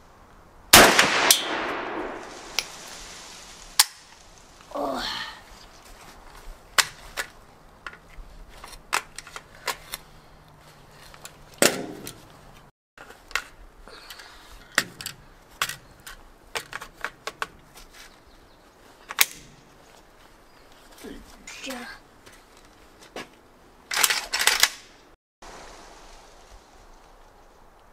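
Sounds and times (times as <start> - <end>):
gunshots with echo: 0.8 - 2.4.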